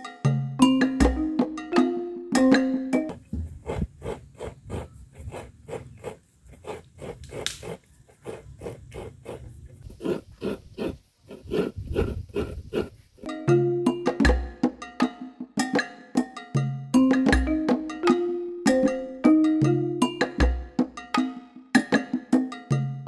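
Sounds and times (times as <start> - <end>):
percussive background music: 0.3 - 3.1, 13.3 - 23.0
coconut grater rasping scrapes: 3.1 - 13.1.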